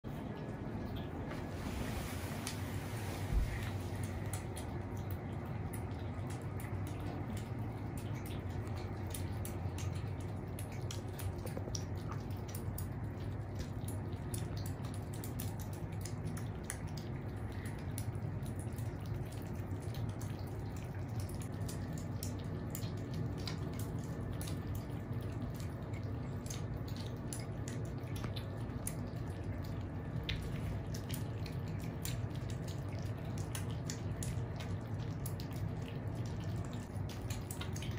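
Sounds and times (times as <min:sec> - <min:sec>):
kittens chewing and lapping food: 0:00.0 - 0:37.9
steady low hum: 0:00.1 - 0:37.9.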